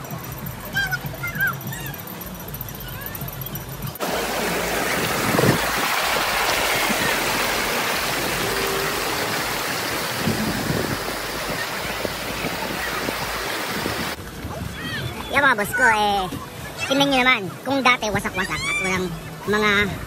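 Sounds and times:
river rushing over rocks: 4.0s - 14.2s.

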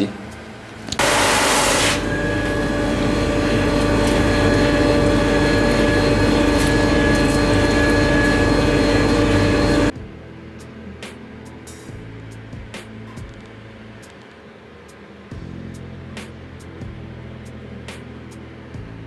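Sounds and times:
drum sander humming and whining: 0.0s - 10.0s.

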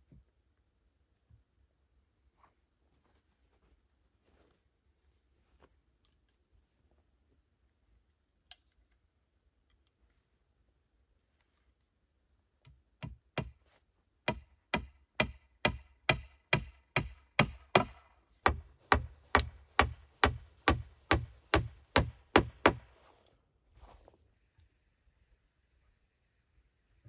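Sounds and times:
hand tool striking wood: 13.0s - 13.6s, 14.2s - 23.0s.

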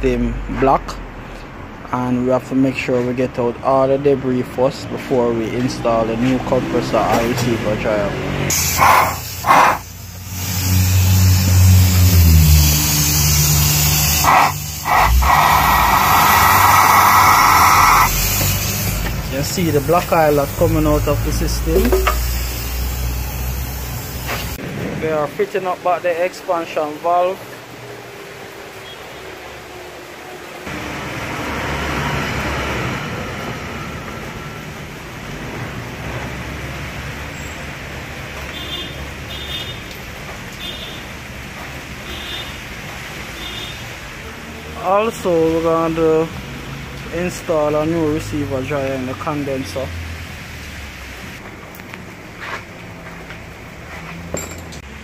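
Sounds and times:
air hissing through lines: 8.5s - 24.6s
low mechanical drone: 10.2s - 23.7s.

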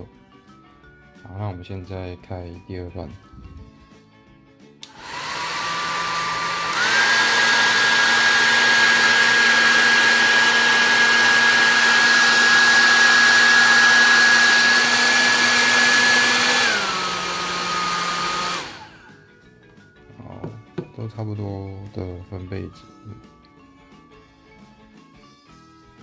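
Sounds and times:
hair dryer switch click: 4.8s - 10.0s, 15.8s - 18.8s
hair dryer running: 4.8s - 19.3s.

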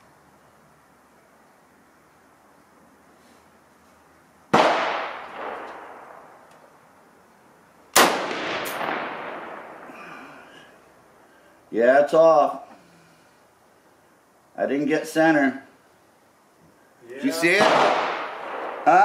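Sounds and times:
rifle shots with echo: 4.5s - 6.4s, 8.0s - 9.9s, 17.4s - 19.0s.

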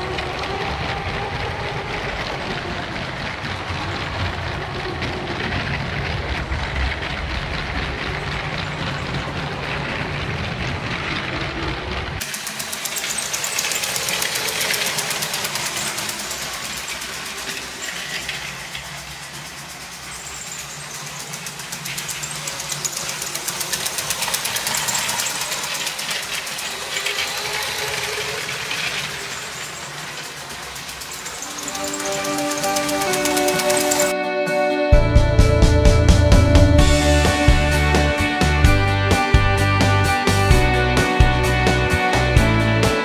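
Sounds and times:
toy train wheels clattering: 0.0s - 34.1s
toy train motor whirring: 12.2s - 34.1s.

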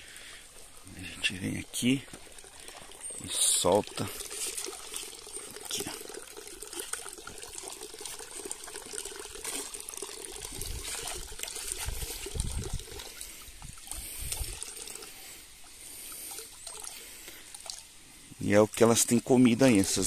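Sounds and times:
water trickling from pipe into pond: 0.0s - 20.0s
net sloshing through water: 9.4s - 14.8s.

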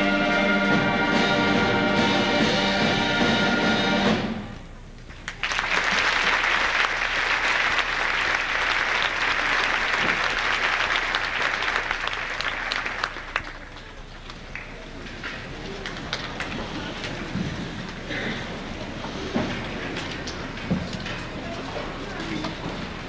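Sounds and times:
concert band chord: 0.0s - 4.5s
audience applauding: 5.2s - 17.4s.

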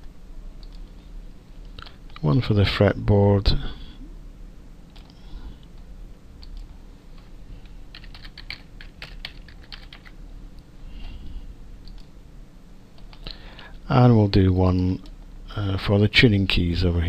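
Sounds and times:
low steady hum: 0.0s - 17.0s
keyboard typing: 6.4s - 7.3s, 7.9s - 10.2s.

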